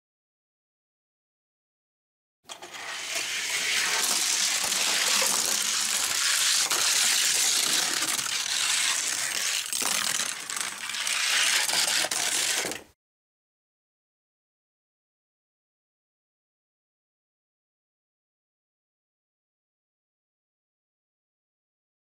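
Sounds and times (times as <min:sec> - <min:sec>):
toy cars rolling down track: 0:02.5 - 0:12.9.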